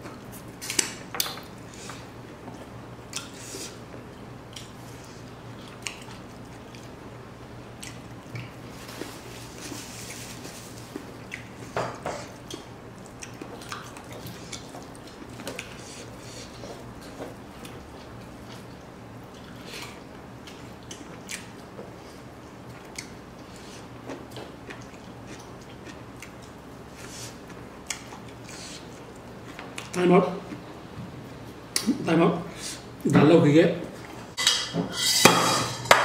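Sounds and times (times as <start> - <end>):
person chewing: 3.1 - 3.8, 4.5 - 7.0, 7.8 - 30.6.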